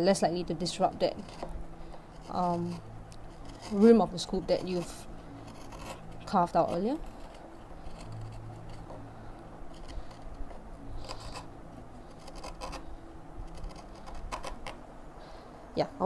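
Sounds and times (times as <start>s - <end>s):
chisel scraping wood: 1.0s - 9.0s, 9.7s - 11.5s, 12.1s - 12.8s, 13.5s - 14.8s.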